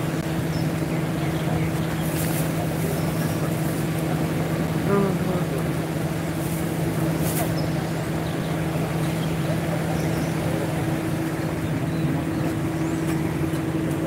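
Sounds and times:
motor humming steadily: 0.0 - 14.0.

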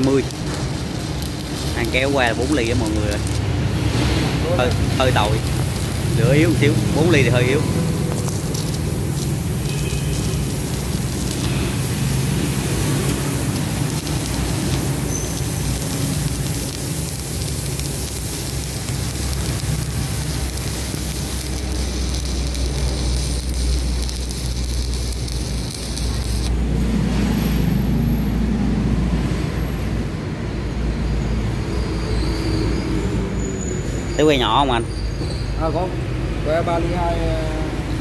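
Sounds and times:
welding arc crackling sizzle: 0.0 - 28.0.

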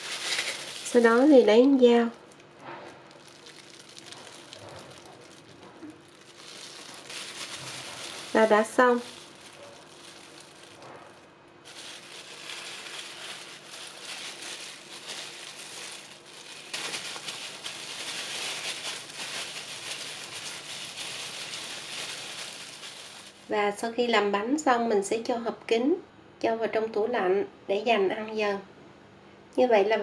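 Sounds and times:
plastic gloves crinkling: 0.0 - 23.8.

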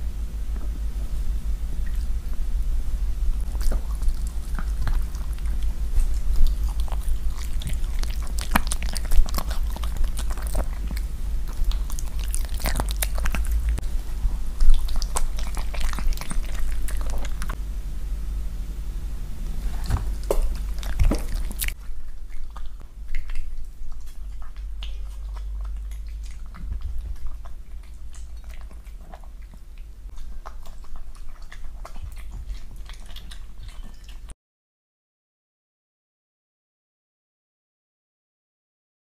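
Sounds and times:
low steady hum: 0.0 - 34.3
dog chewing food: 3.2 - 17.6, 19.5 - 34.3.

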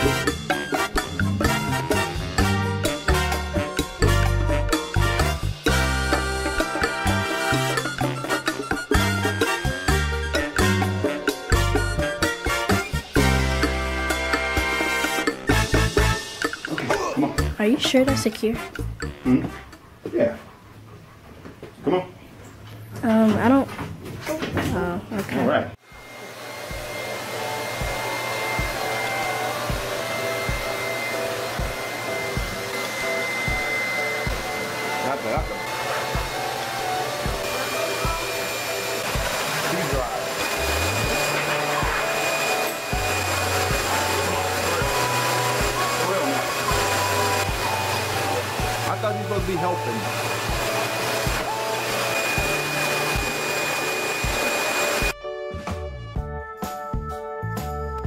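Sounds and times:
pet dryer blowing air: 25.8 - 55.2.

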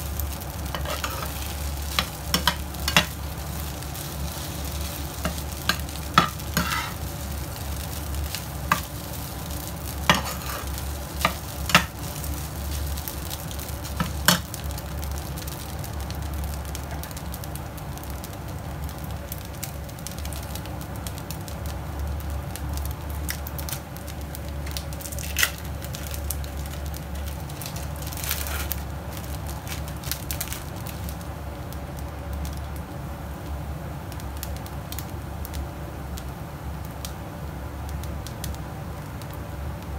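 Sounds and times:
rice sizzling in a frying pan: 0.0 - 39.9
metal spatula scraping a pan: 0.7 - 3.1, 5.2 - 7.0, 10.1 - 11.9.

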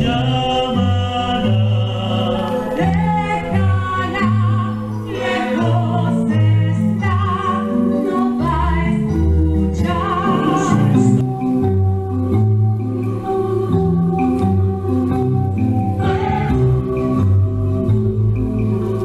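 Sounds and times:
voices singing: 0.0 - 11.2, 15.7 - 17.4
instrumental accompaniment with bass: 0.0 - 19.0.

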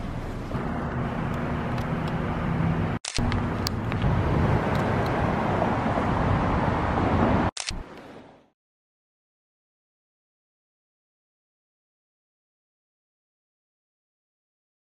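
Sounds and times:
car engine hum: 0.0 - 8.5
road noise: 0.0 - 8.6.

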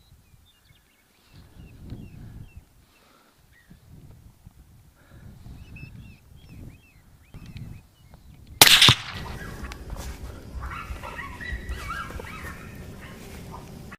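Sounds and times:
rifle shot: 8.6 - 9.6
coyote yelping and whining: 10.6 - 13.2.

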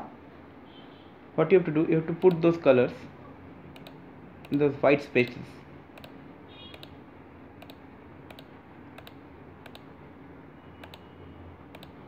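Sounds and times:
faint steady hum: 0.0 - 12.0
computer mouse clicking: 2.2 - 2.5, 3.7 - 4.6, 6.0 - 7.0, 7.6 - 9.9, 10.8 - 11.1, 11.7 - 12.0.

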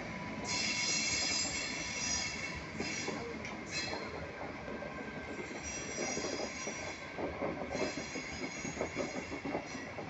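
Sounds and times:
high metallic wheel squeal: 0.4 - 4.0
train wheels knocking over rail joints: 5.2 - 10.0.

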